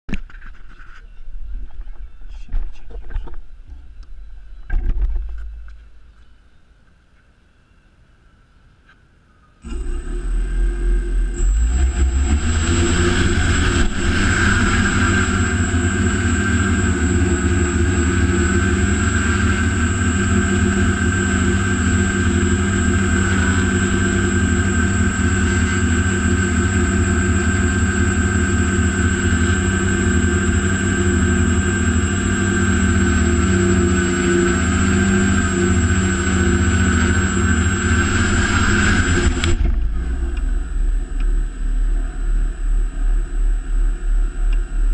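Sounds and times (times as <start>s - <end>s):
drone motors and propellers whining: 9.6s - 44.9s.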